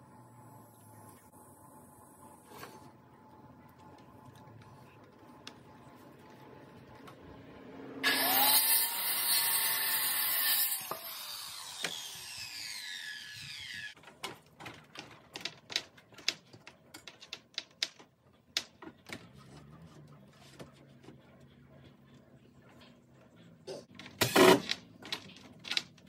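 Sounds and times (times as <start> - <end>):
circular saw cutting wood: 7.8 - 14.0
saw blade whining down: 8.0 - 14.0.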